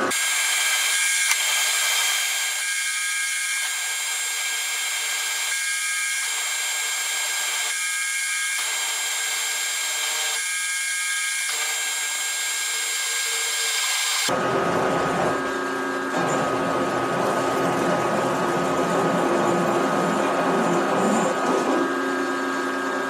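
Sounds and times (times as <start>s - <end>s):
grinding of metal cutting: 0.0s - 15.5s
drill whine boring steel: 0.0s - 23.0s.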